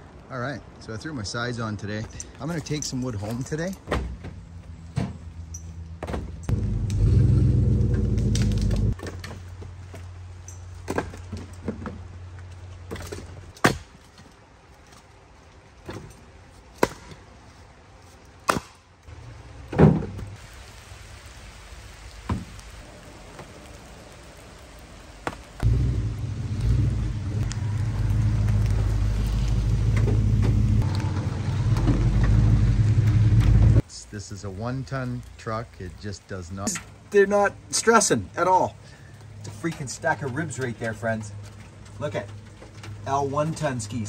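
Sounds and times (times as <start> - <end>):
low steady rumble: 6.4 - 9.0, 25.6 - 33.8.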